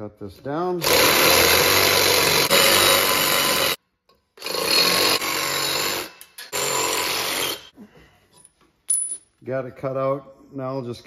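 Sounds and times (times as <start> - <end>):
reciprocating saw cutting metal: 0.8 - 3.8, 4.4 - 7.7.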